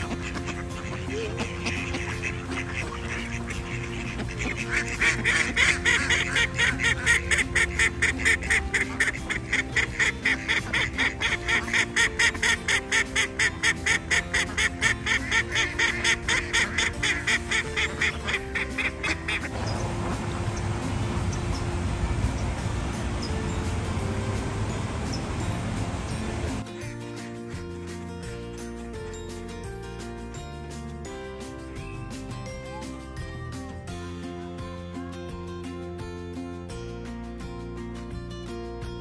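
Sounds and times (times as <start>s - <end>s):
mallard quacking: 0.0s - 19.6s
background music: 0.0s - 39.0s.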